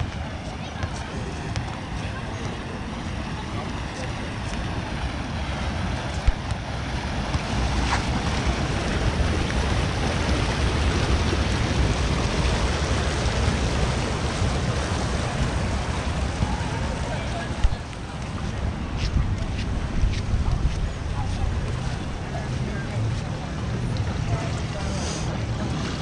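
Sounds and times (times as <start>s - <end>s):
wind rumbling on microphone: 0.0s - 26.0s
ocean surf: 1.2s - 19.0s.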